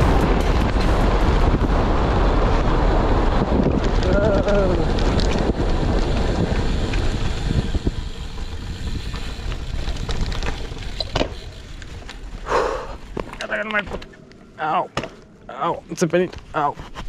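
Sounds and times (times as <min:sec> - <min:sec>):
wind rushing over microphone: 0:00.0 - 0:13.2
bicycle rattling over asphalt: 0:00.0 - 0:17.0.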